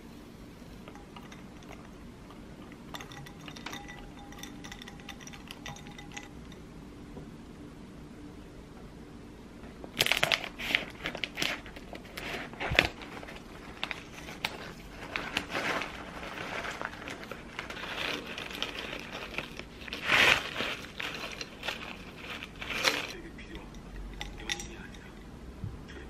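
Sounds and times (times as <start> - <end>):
snack bag rustling: 9.9 - 23.6.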